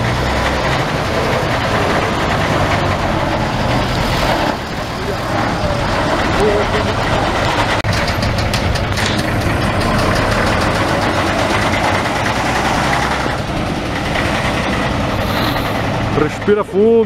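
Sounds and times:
off-road vehicle engine driving past: 0:00.0 - 0:17.0.

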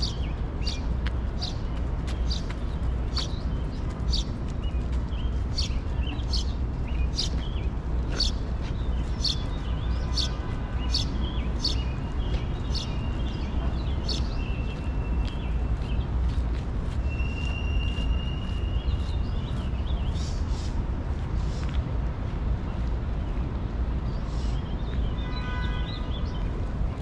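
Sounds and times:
bird chirping: 0:00.0 - 0:16.0.

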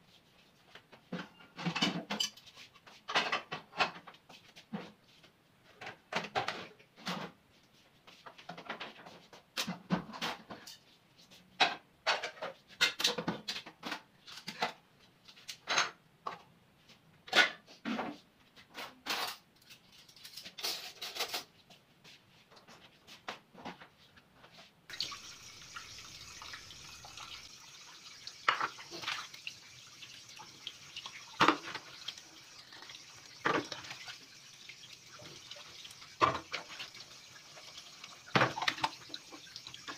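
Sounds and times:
dishes and utensils clattering: 0:01.1 - 0:04.1, 0:11.6 - 0:14.8, 0:17.3 - 0:21.5, 0:24.9 - 0:39.9
water running at a sink: 0:24.9 - 0:39.9.

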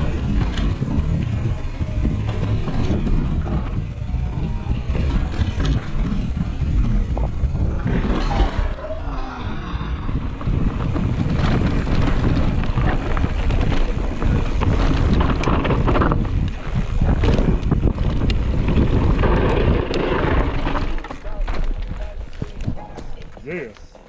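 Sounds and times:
wind rushing over microphone: 0:00.0 - 0:23.1
bike rattling clicks: 0:10.1 - 0:23.4
tyres crunching over loose rock: 0:10.1 - 0:23.8.

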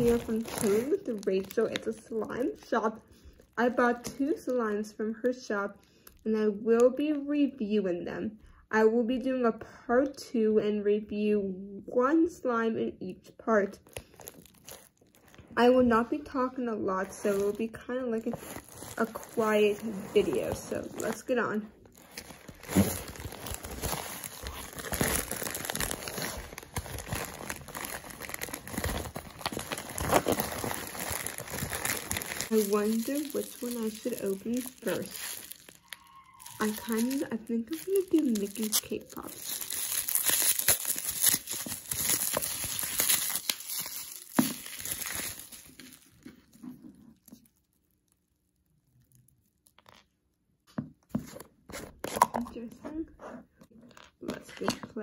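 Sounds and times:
plastic bag crinkling and rustling: 0:00.0 - 0:04.2, 0:13.8 - 0:50.1.

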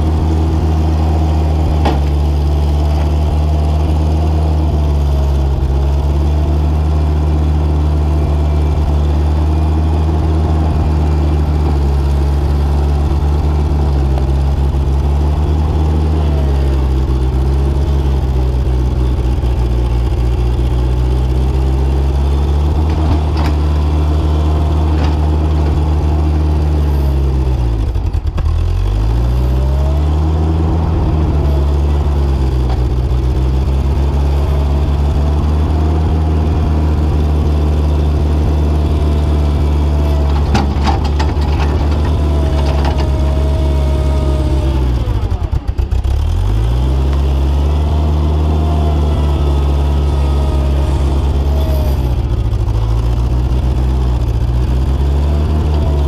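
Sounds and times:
loader engine running: 0:00.0 - 0:56.0.

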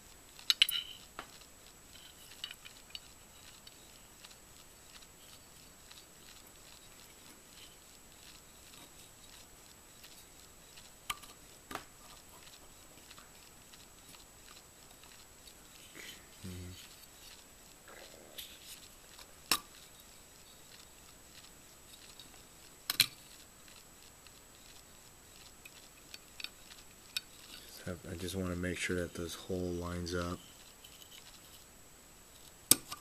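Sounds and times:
faint high whine: 0:00.0 - 0:33.0
metal parts clicking: 0:00.4 - 0:01.1.

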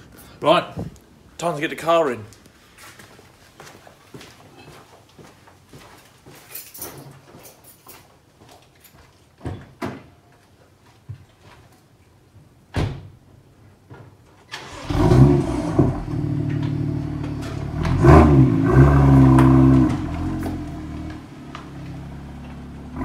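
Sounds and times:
car engine starting and running: 0:14.5 - 0:23.0.

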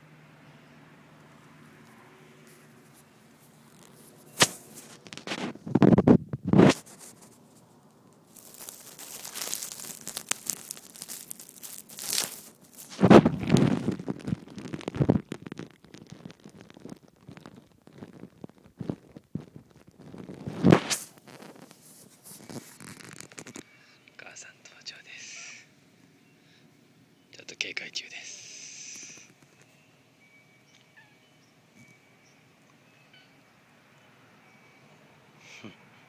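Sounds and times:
phone rustling against grass: 0:01.2 - 0:25.0.

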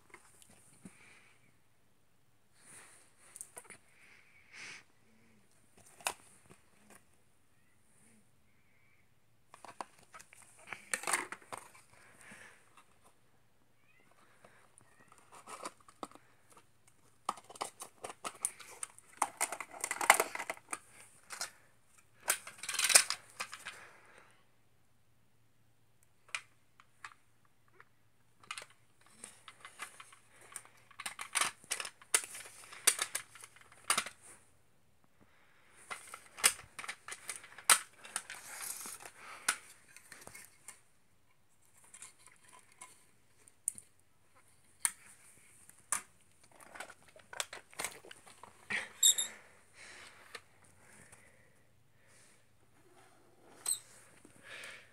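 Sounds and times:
plastic toy bricks clicking: 0:17.3 - 0:21.5, 0:22.2 - 0:23.8, 0:29.4 - 0:34.1.

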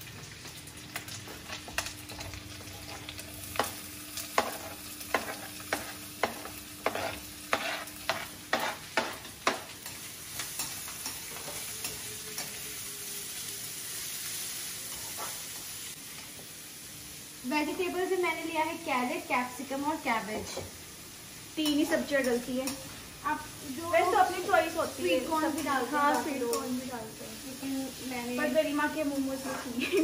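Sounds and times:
onion sizzling in oil: 0:00.0 - 0:30.0.

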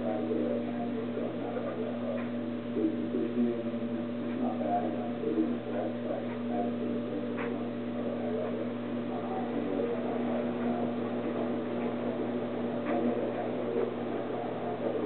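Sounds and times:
steady machine hum: 0:00.0 - 0:15.0.

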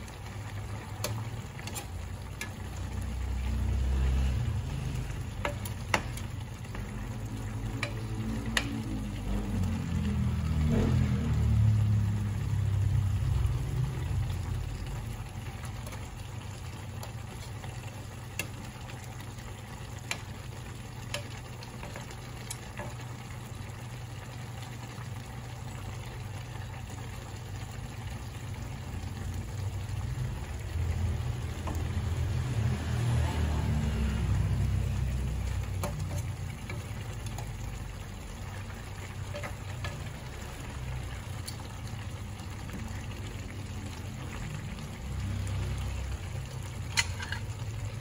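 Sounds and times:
broth simmering in a pan: 0:00.0 - 0:48.0
metal spoon clicking on pan: 0:07.7 - 0:08.8, 0:46.9 - 0:47.5.

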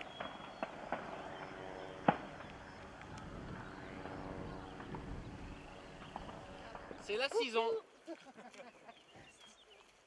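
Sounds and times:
sharp cracks: 0:00.0 - 0:03.3
distant voices: 0:00.0 - 0:07.4.

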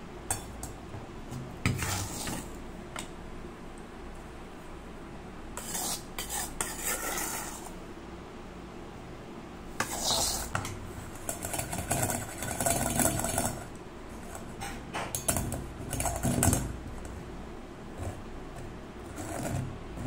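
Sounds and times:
spoon scraping a metal sieve: 0:00.3 - 0:03.1, 0:05.6 - 0:07.8, 0:09.8 - 0:17.1, 0:18.0 - 0:20.0.

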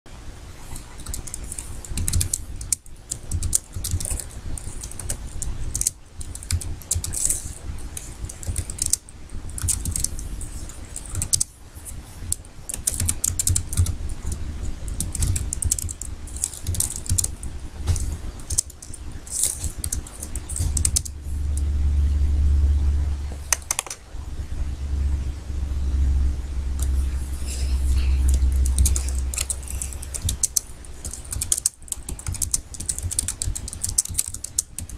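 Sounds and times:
low steady rumble: 0:00.1 - 0:34.9
typing on computer keyboard: 0:00.8 - 0:11.5, 0:12.3 - 0:21.1, 0:23.5 - 0:24.0, 0:28.2 - 0:34.9.

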